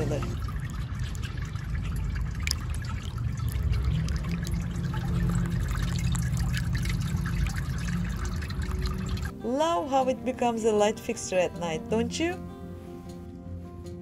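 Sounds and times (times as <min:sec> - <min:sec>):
fountain water bubbling and trickling: 0:00.0 - 0:09.3.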